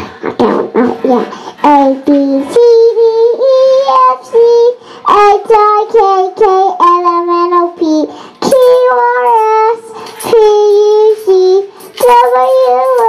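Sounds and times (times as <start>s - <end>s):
girl singing into microphone: 0.0s - 13.0s
breaths between phrases: 1.3s - 1.6s, 4.8s - 5.1s.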